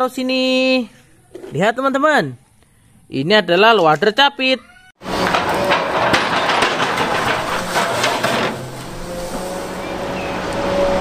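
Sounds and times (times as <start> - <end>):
rock clattering and scraping: 5.0 - 9.6
excavator engine under load: 5.0 - 11.0.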